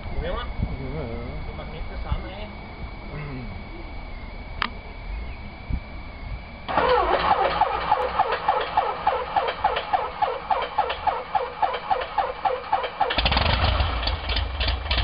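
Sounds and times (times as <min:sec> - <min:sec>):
aircraft engine idling: 0:00.0 - 0:15.0.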